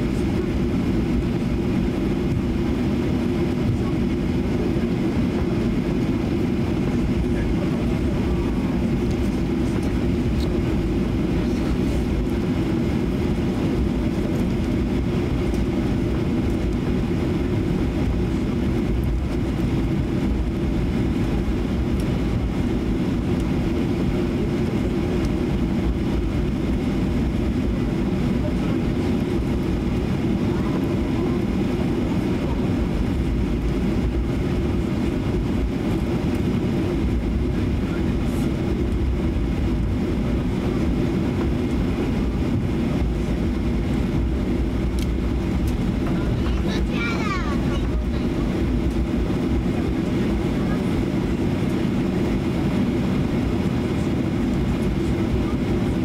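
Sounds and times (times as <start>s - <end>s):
aircraft cabin rumble: 0.0s - 56.0s
faint jet engine whine: 0.0s - 56.0s.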